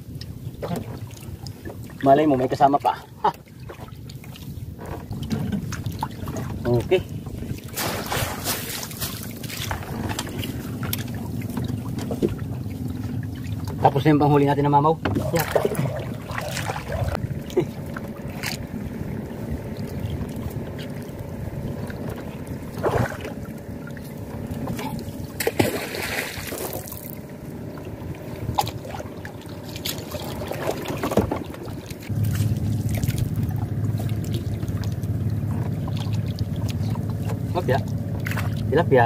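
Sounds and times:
steady low hum: 0.0s - 39.0s
water lapping around canoe: 0.0s - 39.0s
small splashes: 3.1s - 14.0s, 15.0s - 18.7s, 19.8s - 38.7s
wet net hauled in by hand: 7.7s - 10.0s.

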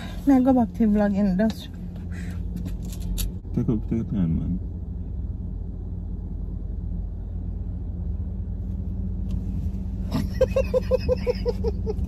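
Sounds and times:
car cabin rumble: 0.0s - 12.0s
woman laughing: 10.1s - 12.0s.

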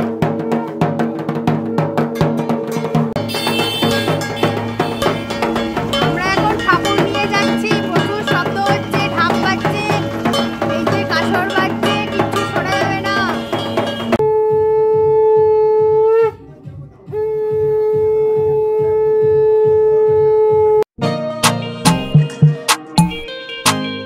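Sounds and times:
music: 0.0s - 17.7s, 21.0s - 24.0s
conch shell blown: 3.2s - 8.3s.

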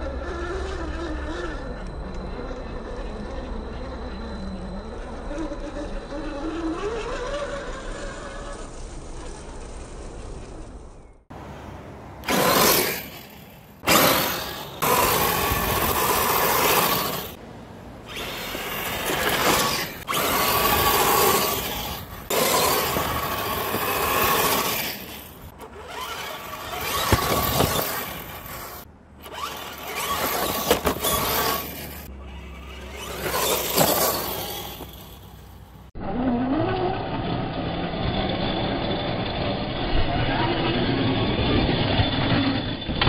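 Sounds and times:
electric motor whining: 0.0s - 9.6s, 12.2s - 13.2s, 13.8s - 17.4s, 18.0s - 35.4s
rough rushing noise: 11.3s - 35.9s.

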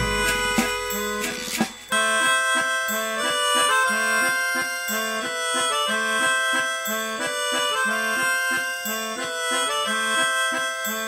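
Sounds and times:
bouncing bass line: 0.0s - 1.9s
upbeat instrumental music: 0.0s - 10.2s
reedy accordion-like lead: 0.0s - 11.0s.

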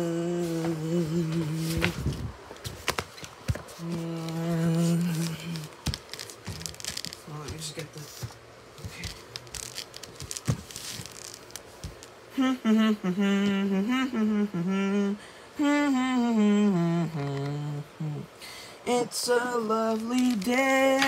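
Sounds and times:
person humming a tune: 0.0s - 2.2s, 3.8s - 5.8s, 12.3s - 21.0s.

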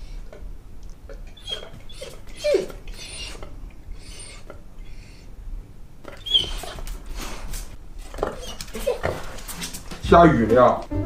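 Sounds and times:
dog whining: 1.1s - 5.4s, 6.0s - 9.7s
dog scuffing on wooden floor: 6.4s - 10.9s.

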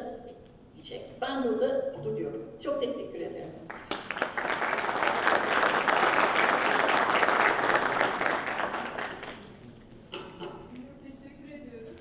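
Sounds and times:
audience applauding: 3.7s - 9.6s.

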